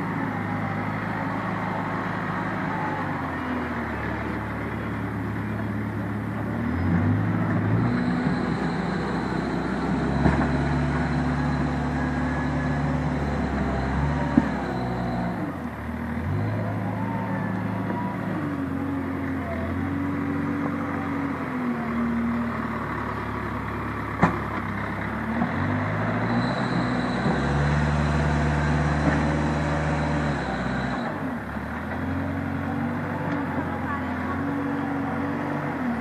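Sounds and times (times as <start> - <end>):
diesel engine revving: 0.0 - 36.0.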